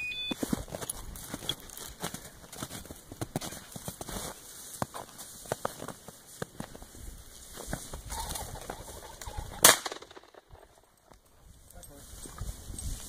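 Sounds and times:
rustling of brush and snow: 0:00.0 - 0:09.6, 0:10.5 - 0:13.0
pheasant cackling: 0:08.0 - 0:09.8
shotgun shot: 0:09.6 - 0:10.4.

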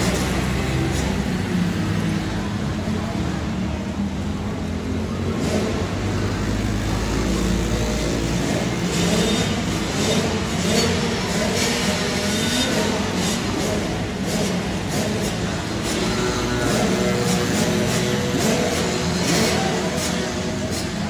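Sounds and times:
quad engines revving: 0:00.0 - 0:21.0.

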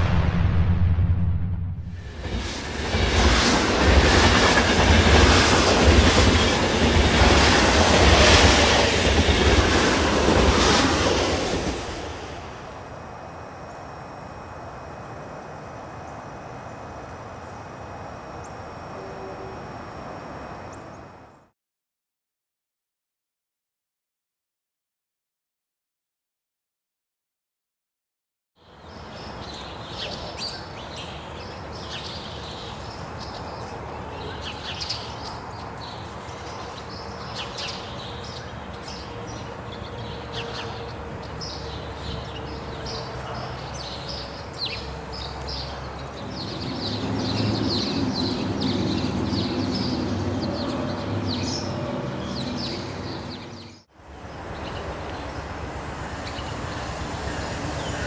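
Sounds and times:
approaching train rush: 0:00.0 - 0:12.9, 0:35.0 - 0:58.0
distant freight train rumble: 0:00.0 - 0:13.0, 0:29.0 - 0:58.0.

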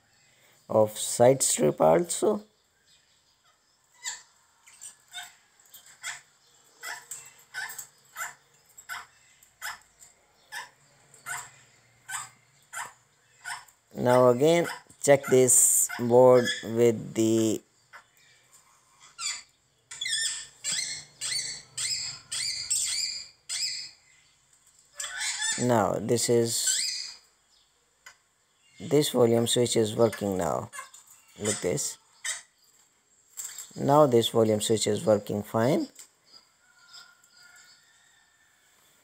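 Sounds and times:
small animal squeaky chirps: 0:10.5 - 0:13.7, 0:18.8 - 0:24.0, 0:26.6 - 0:27.2.

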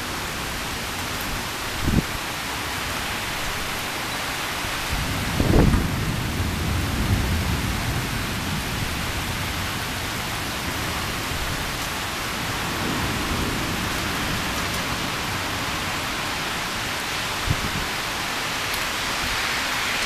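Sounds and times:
heavy rain: 0:00.0 - 0:20.0
thunder rumble: 0:04.9 - 0:16.0.

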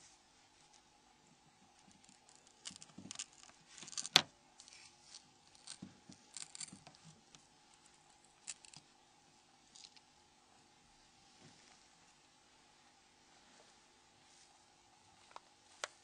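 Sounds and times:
tweezers scratching and clicking: 0:01.9 - 0:08.8.

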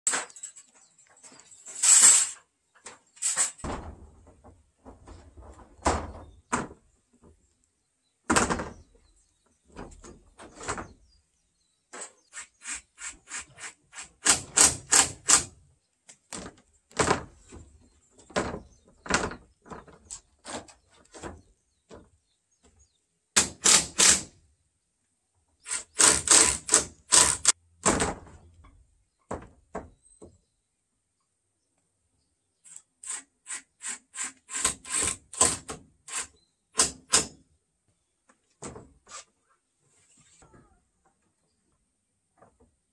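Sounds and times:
hammer striking nails: 0:14.2 - 0:15.5, 0:23.4 - 0:24.3, 0:36.8 - 0:37.4.

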